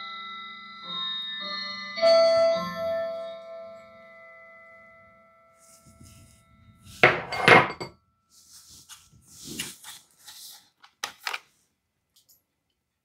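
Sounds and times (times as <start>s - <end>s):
dishes knocking on bowl: 7.0s - 7.9s
utensils scraping and clinking: 7.0s - 7.9s.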